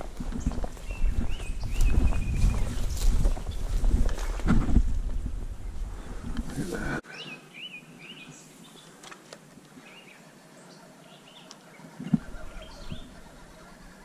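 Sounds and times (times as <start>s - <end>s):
small birds chirping: 0.0s - 4.5s, 5.6s - 9.1s, 9.7s - 14.0s
faint outdoor hiss: 4.1s - 14.0s.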